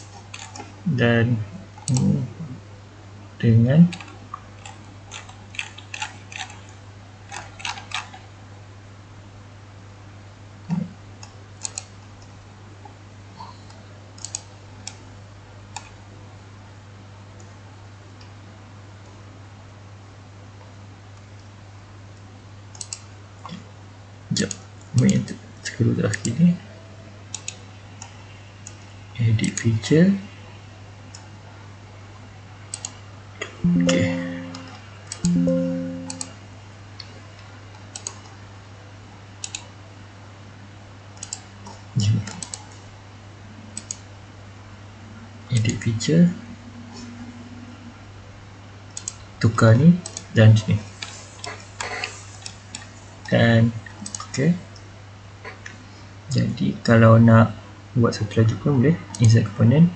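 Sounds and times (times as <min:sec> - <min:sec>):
computer mouse clicking: 0:00.0 - 0:00.7, 0:03.9 - 0:08.2, 0:10.7 - 0:12.3, 0:14.2 - 0:15.0, 0:15.7 - 0:16.0, 0:22.7 - 0:23.6, 0:27.3 - 0:29.6, 0:32.7 - 0:33.0, 0:37.7 - 0:38.4, 0:39.4 - 0:39.7, 0:41.2 - 0:42.8, 0:43.8 - 0:44.0, 0:48.9 - 0:49.2, 0:53.9 - 0:54.3
steady low hum: 0:00.0 - 0:59.9
computer alert ding: 0:33.6 - 0:34.7, 0:35.3 - 0:36.2.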